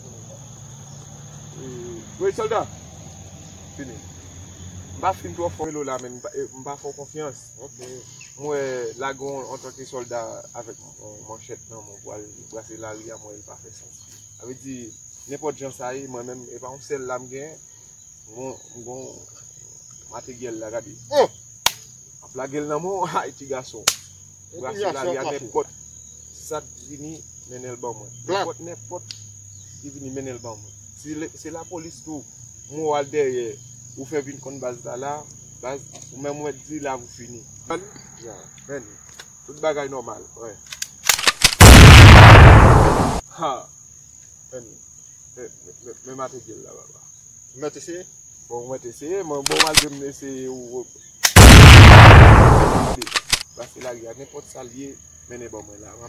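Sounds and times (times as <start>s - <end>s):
crickets chirping: 0.0s - 56.0s
insects calling high-pitched: 0.0s - 56.0s
men talking: 1.6s - 2.7s, 5.0s - 17.6s, 22.3s - 23.8s, 24.6s - 25.7s, 29.8s - 38.9s
sharp clicks: 40.7s - 43.2s, 49.4s - 49.9s, 51.2s - 53.5s
loud blast of noise: 41.6s - 43.2s, 51.4s - 53.0s.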